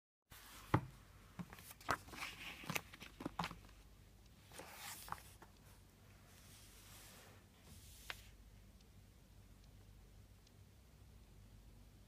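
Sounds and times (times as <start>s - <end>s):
pages rustling: 1.4s - 3.8s, 4.5s - 5.5s.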